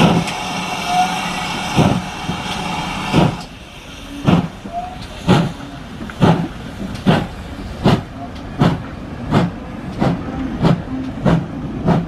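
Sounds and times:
steam hiss: 0.0s - 8.0s
steam locomotive chuffing: 0.0s - 12.0s.

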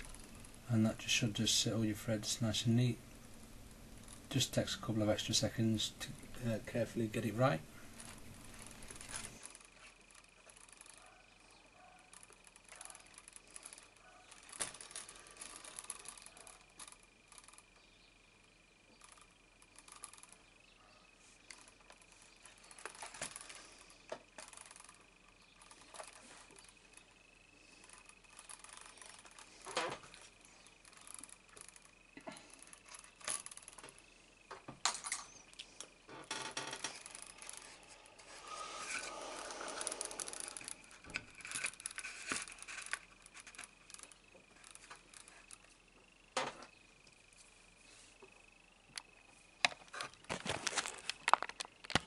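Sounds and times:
faint high whine: 0.0s - 51.6s
thread rubbing through leather: 7.9s - 17.6s, 36.9s - 45.6s.

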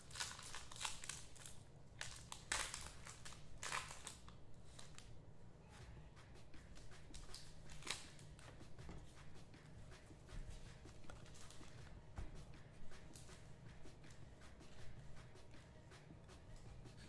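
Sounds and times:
card packs rustling and crinkling: 0.0s - 5.0s, 7.1s - 8.2s, 10.9s - 11.8s.

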